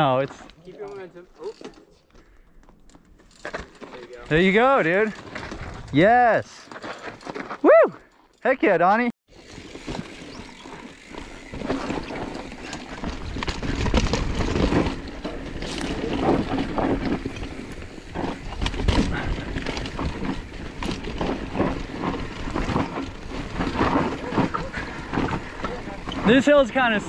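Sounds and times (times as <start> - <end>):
bike knocking and rattling: 0.5 - 6.0, 9.3 - 27.0
tyres crunching over dirt and stones: 9.4 - 26.5.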